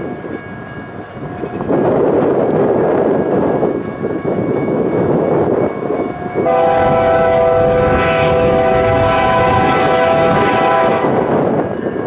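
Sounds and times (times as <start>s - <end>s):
wind buffeting microphone: 0.0s - 12.0s
locomotive air horn: 6.4s - 11.4s.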